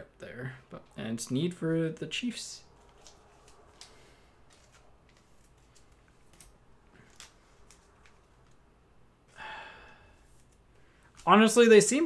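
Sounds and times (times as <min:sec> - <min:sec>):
trading cards being handled: 0:02.7 - 0:08.8, 0:10.2 - 0:11.6.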